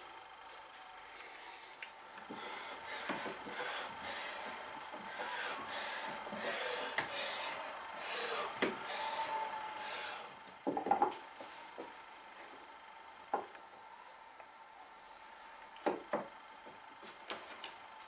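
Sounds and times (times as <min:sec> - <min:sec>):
plane scraping wood: 0:02.3 - 0:10.3
loud knocks: 0:10.6 - 0:11.2.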